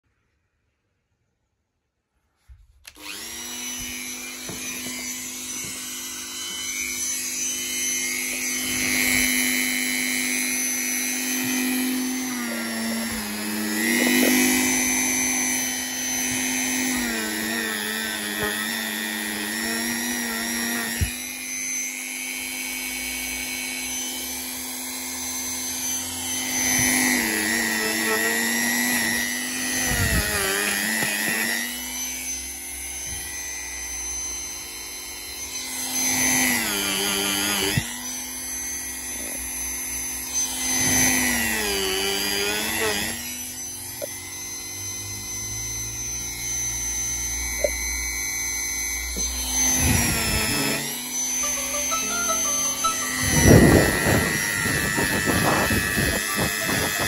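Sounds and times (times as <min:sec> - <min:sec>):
rotary tool grinding metal: 0:02.8 - 0:57.0.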